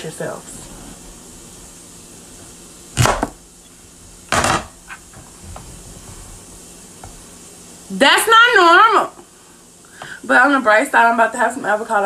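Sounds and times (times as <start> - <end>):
knife chopping onto cutting board: 3.0 - 3.4.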